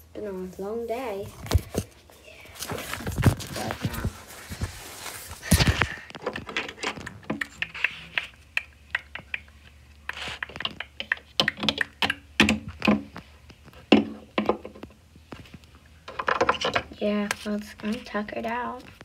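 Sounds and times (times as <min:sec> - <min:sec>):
plastic toys clicking and tapping: 0:10.4 - 0:13.1, 0:16.1 - 0:17.4.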